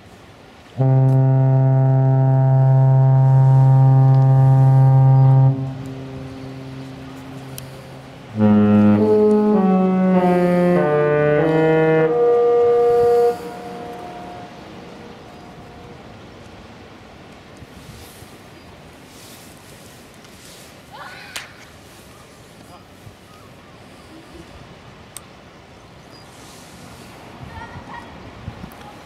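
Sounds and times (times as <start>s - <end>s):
ship horn blast: 0.6s - 17.1s
ship horn playing a tune: 0.6s - 17.1s.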